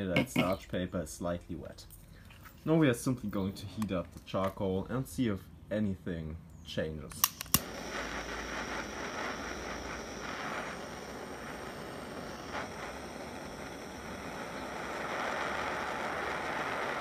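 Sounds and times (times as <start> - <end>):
butane torch flame hissing: 7.2 - 17.0.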